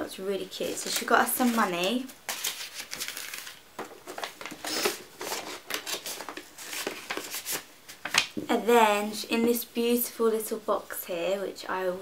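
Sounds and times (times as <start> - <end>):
paper and card rustling: 0.6 - 8.4.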